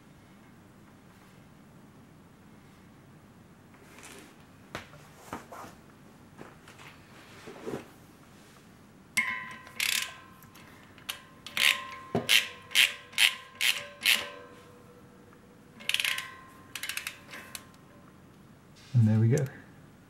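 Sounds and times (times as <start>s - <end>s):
faint metallic ring: 9.2s - 18.1s
socket ratchet clicking: 9.6s - 14.5s, 15.8s - 17.7s.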